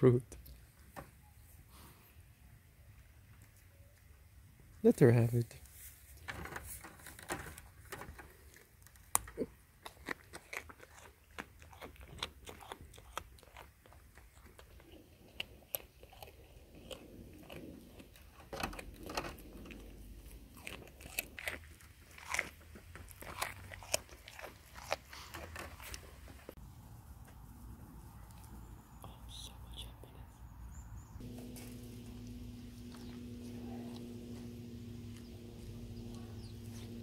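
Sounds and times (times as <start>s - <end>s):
goat crunching carrots: 6.2s - 26.6s, 31.2s - 37.0s.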